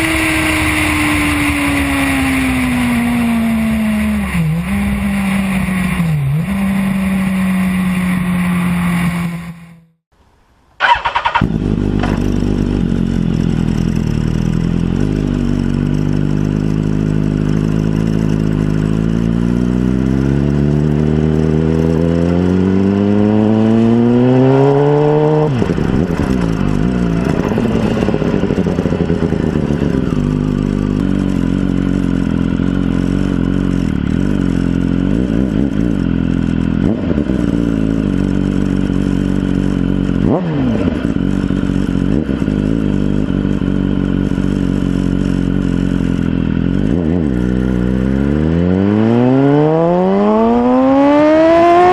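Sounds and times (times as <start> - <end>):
motorcycle engine accelerating: 0.0 - 10.0, 10.8 - 51.9.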